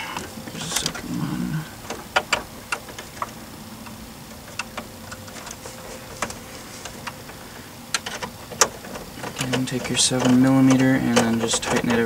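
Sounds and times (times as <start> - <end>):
bolt clicking and ticking: 7.9 - 12.0.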